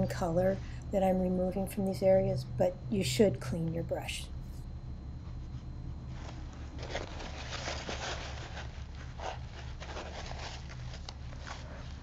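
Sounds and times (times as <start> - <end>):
steady low hum: 0.0 - 12.0
paper towel blotting: 5.4 - 12.0
brush scratching on paper: 6.9 - 12.0.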